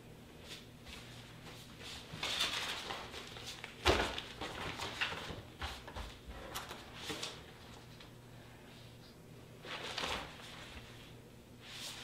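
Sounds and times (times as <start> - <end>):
paper rustling and shuffling: 1.0 - 8.1, 9.6 - 12.0.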